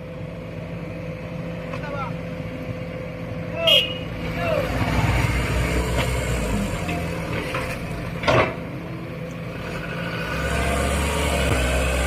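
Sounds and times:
diesel engines running: 0.0s - 12.0s.

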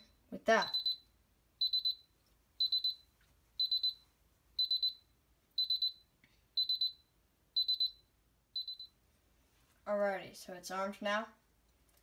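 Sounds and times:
keypad buzzer beeping: 1.6s - 2.0s, 2.6s - 3.0s, 3.6s - 4.0s, 5.6s - 6.0s, 6.6s - 7.0s, 7.6s - 8.0s, 8.6s - 8.9s.

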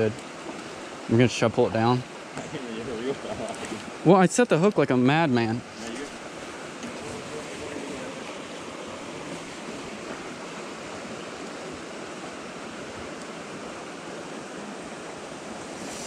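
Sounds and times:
creek water rushing: 0.0s - 16.0s.

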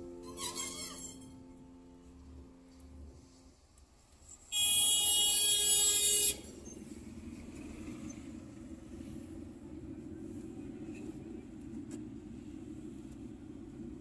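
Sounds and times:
car engine and tyre noise: 0.0s - 14.0s
vehicle horn: 4.5s - 6.7s.

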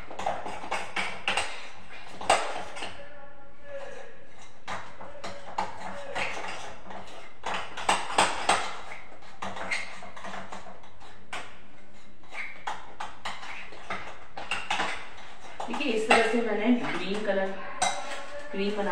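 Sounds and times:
utensil stirring and scraping bowl: 0.0s - 3.0s, 3.7s - 18.9s
utensil clinking against bowl: 12.6s - 18.9s.

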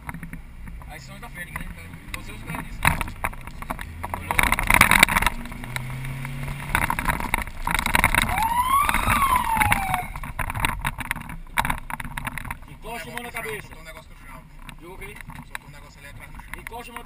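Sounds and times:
car cabin road noise: 0.0s - 17.0s
siren whoop: 8.2s - 10.2s.

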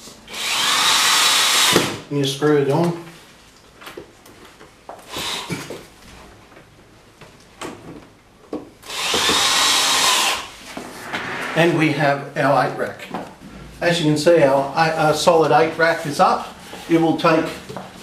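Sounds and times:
cordless drill whining: 0.3s - 1.8s, 8.8s - 10.5s.

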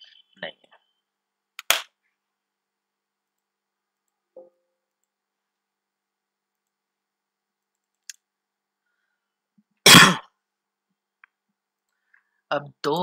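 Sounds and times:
computer mouse clicks: 7.6s - 8.3s.

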